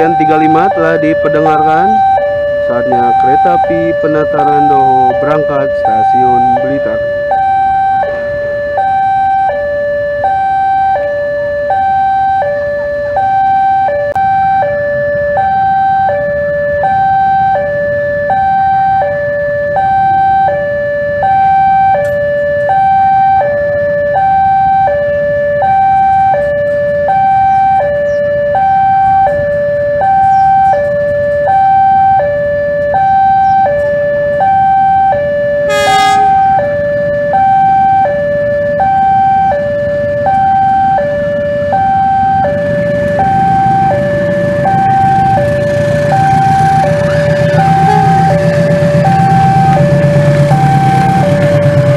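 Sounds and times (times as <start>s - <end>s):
diesel locomotive engine rumbling: 0.0s - 51.9s
two-tone crossing alarm: 0.0s - 51.9s
horn blast: 35.7s - 36.9s, 44.5s - 51.9s.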